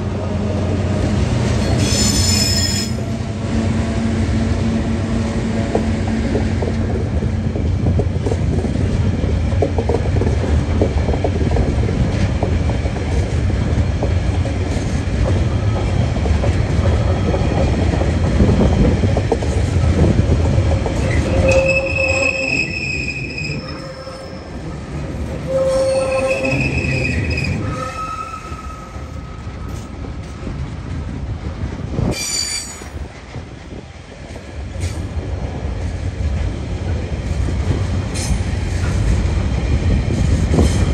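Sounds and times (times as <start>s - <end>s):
diesel locomotive engine hum: 0.0s - 40.9s
train rumble: 0.0s - 40.9s
rail clatter: 5.7s - 40.9s
wheels squealing: 21.1s - 24.6s, 25.4s - 29.1s.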